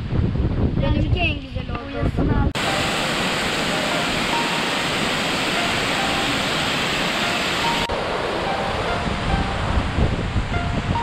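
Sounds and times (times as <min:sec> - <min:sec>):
river rapids: 0:02.6 - 0:11.0
waterfall rushing: 0:02.6 - 0:11.0.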